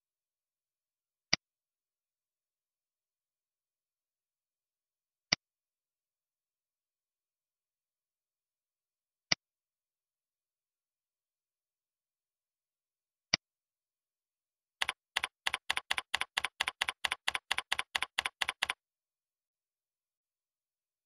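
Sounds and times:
keyboard typing: 14.8 - 18.8.

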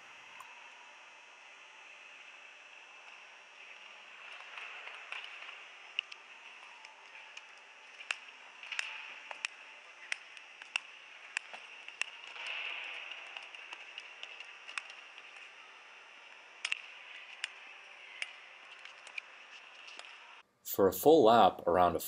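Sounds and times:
skate blades clicking: 4.2 - 15.6.

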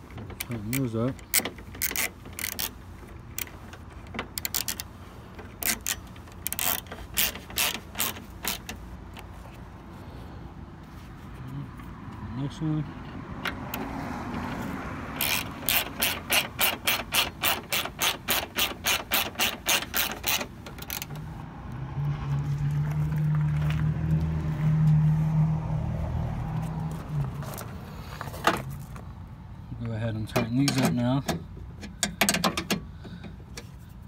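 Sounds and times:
hand ratchet clicking: 0.2 - 8.8, 15.1 - 21.2.

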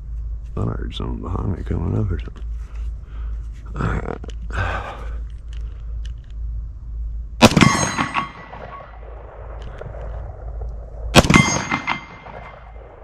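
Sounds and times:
bullet striking steel target: 7.4 - 9.1, 11.1 - 13.0
pistol shot: 7.4 - 10.2, 11.1 - 13.0.

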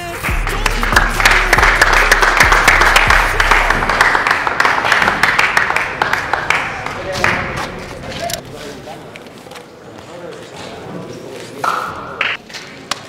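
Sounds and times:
background music with bass: 0.0 - 8.2
crowd applause: 0.3 - 8.1.

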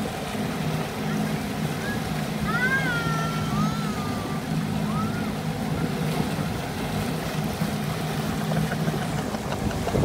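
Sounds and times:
motorboat engine humming: 0.0 - 10.0
water noise: 0.0 - 10.0
wind noise: 9.2 - 10.0.

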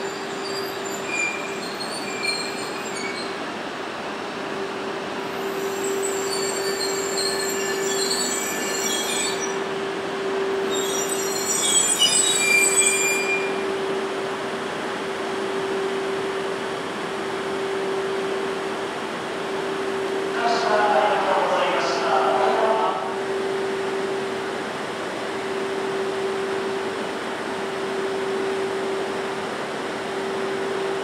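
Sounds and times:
high-pitched brake squealing: 0.0 - 3.4, 5.3 - 9.6, 10.6 - 13.8
train braking hum: 0.0 - 31.0.

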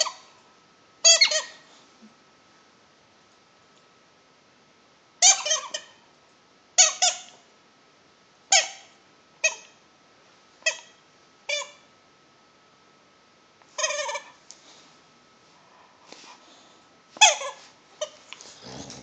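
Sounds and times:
rubber squeaky toy squeaking: 1.0 - 1.6, 5.2 - 5.9, 13.8 - 14.4, 17.2 - 17.6.

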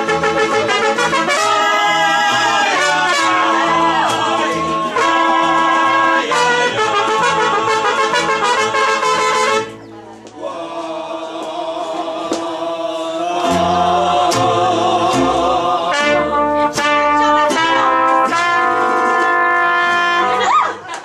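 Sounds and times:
mariachi band with trumpets: 0.0 - 21.0
deep bass notes: 11.7 - 17.2.

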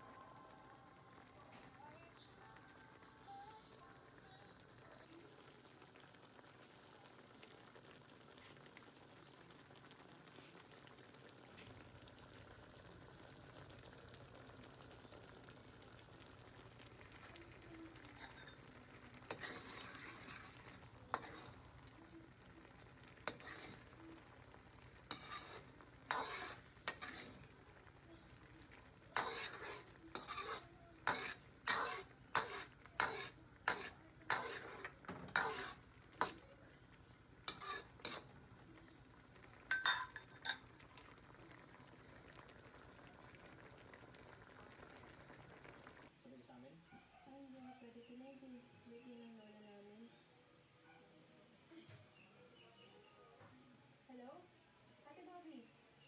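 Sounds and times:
food simmering and sizzling in a wok: 0.0 - 46.6
metal spoon scraping a wok: 18.0 - 21.7, 22.7 - 24.0, 24.8 - 27.5, 29.2 - 36.4, 37.4 - 38.3, 39.7 - 40.7.

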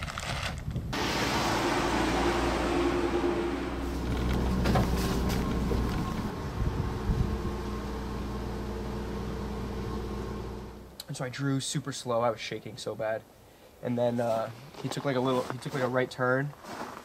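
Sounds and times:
tyre and road noise: 0.0 - 10.9
pickup truck engine passing: 1.0 - 10.8.

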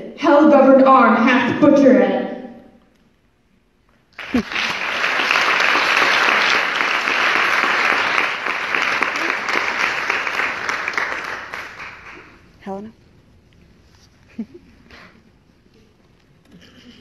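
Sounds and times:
audience applause: 4.2 - 12.4.

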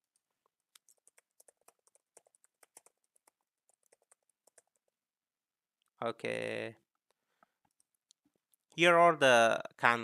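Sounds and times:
keyboard typing: 0.0 - 5.0.

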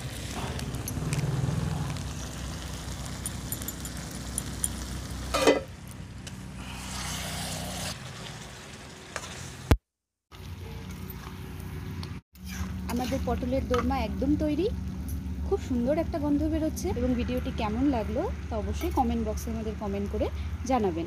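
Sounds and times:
curry sizzling in a pan: 0.0 - 5.7.

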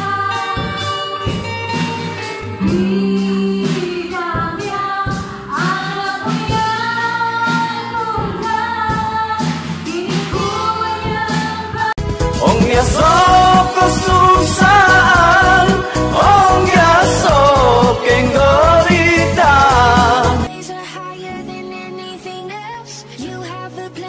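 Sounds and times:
woman singing over a beat: 2.6 - 24.0.

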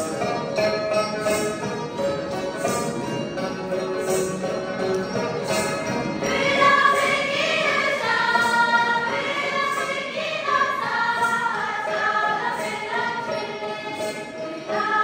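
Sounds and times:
plucked lutes: 0.0 - 15.0
group of voices singing: 6.2 - 15.0.

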